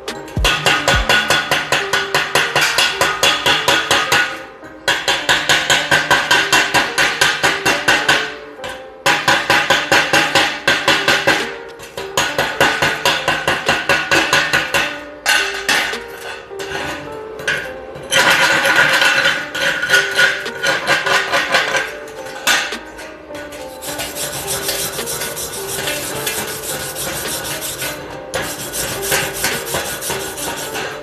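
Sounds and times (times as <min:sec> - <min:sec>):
chipping hammer rapping on steel: 0:00.1 - 0:01.8.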